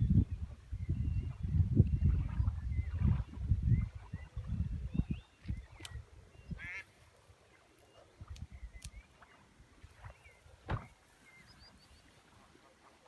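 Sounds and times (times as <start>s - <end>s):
waterfowl calling: 5.8s - 7.0s.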